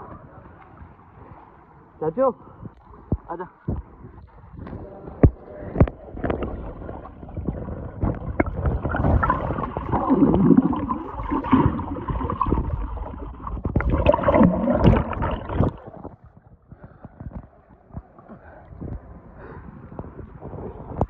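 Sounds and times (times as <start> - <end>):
underwater gurgling and sloshing: 0.0 - 21.0
bubbling: 4.6 - 18.4.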